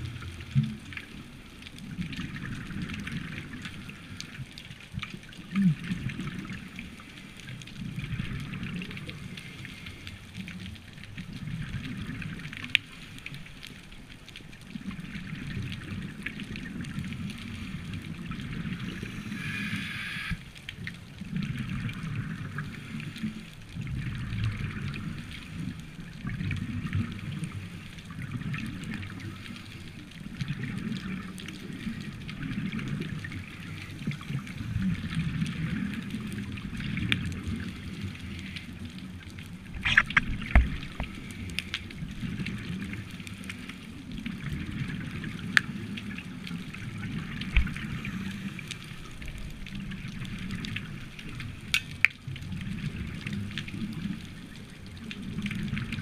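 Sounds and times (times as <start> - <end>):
regulator hiss: 18.8 - 20.4
bubbles gurgling: 21.1 - 29.5, 30.1 - 43.3.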